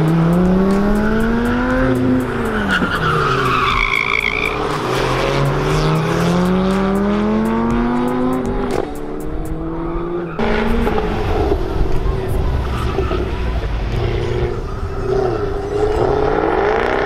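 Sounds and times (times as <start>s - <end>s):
sports car engine revving: 0.0s - 17.0s
tyre squeal: 2.5s - 5.3s, 12.6s - 16.5s.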